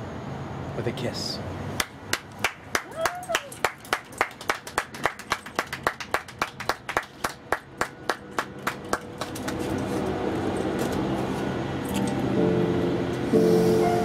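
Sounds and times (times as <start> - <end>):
people clapping in rhythm: 1.8 - 9.7
music: 12.1 - 14.0.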